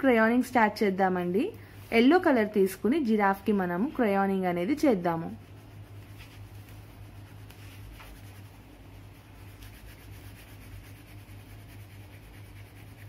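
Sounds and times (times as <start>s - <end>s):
steady low hum: 0.0s - 13.0s
wax crayon rubbing on paper: 4.9s - 13.0s.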